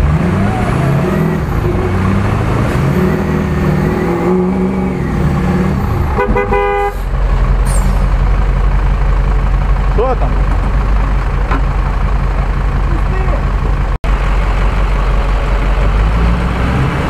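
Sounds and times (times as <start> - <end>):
truck engine revving: 0.0 - 17.0
vehicle horn toots: 6.1 - 7.1.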